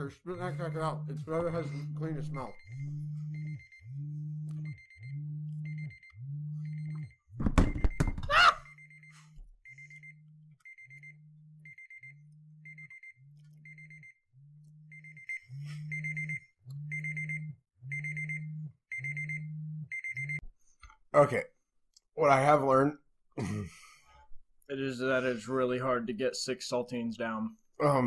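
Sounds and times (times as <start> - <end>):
low buzzy timer beeps: 0.0 - 20.4.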